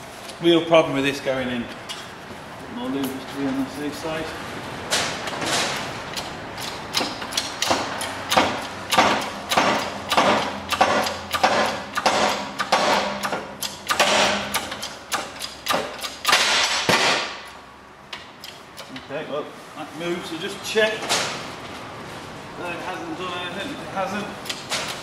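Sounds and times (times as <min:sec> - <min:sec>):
metallic knocks and clanks: 0:04.9 - 0:17.6.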